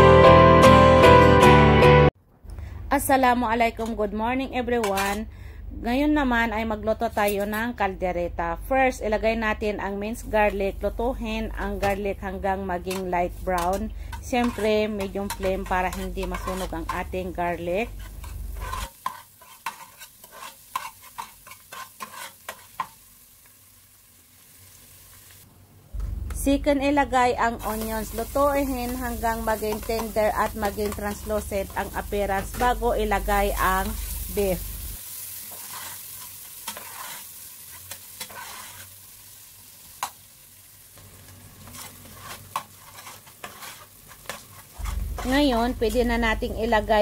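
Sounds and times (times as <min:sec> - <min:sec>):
faint sizzle of frying oil: 0:09.0 - 0:26.6, 0:27.5 - 0:47.0
metal spoon scraping a pot: 0:13.6 - 0:17.1, 0:17.8 - 0:22.9, 0:35.5 - 0:39.0, 0:41.6 - 0:45.4.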